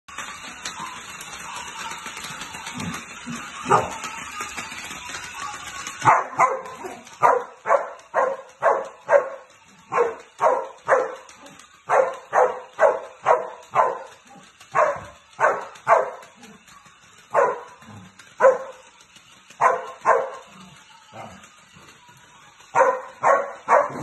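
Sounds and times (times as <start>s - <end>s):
dog barking: 6.1s - 11.2s, 11.9s - 14.1s, 14.7s - 16.2s, 17.4s - 17.7s, 18.4s - 18.7s, 22.8s - 24.0s.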